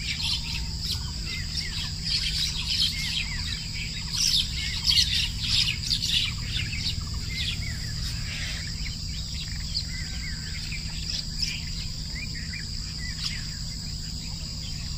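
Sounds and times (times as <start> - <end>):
insects trilling: 0.0 - 14.9
low steady hum: 0.0 - 14.9
small birds chirping: 0.0 - 14.9.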